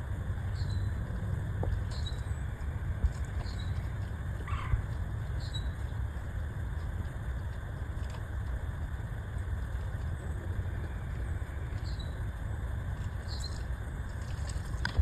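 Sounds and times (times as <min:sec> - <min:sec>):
steady low rumble: 0:00.0 - 0:15.0
faint bird chirps: 0:00.5 - 0:01.0, 0:05.4 - 0:05.8, 0:11.7 - 0:12.2, 0:13.2 - 0:13.6.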